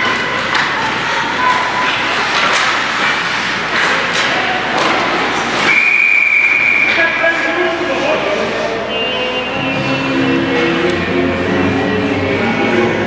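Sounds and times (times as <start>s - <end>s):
hockey sticks and puck clacking: 0.0s - 8.6s, 10.5s - 11.7s
spectator chatter: 0.0s - 13.0s
referee's whistle: 5.7s - 7.0s, 8.9s - 10.1s.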